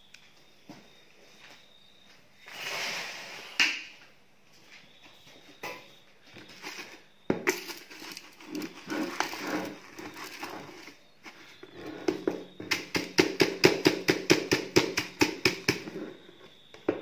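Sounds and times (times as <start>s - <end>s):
tool tapping on bucket: 11.8s - 16.0s.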